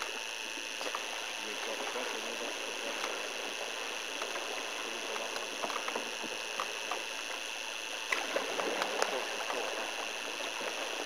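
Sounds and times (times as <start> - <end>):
steady hiss: 0.0 - 11.0
paddles dipping into water: 0.7 - 11.0.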